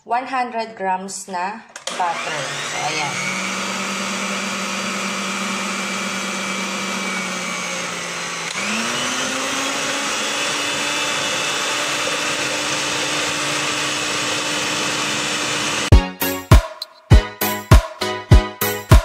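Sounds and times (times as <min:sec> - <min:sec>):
electric mixer whipping: 0:01.8 - 0:15.9.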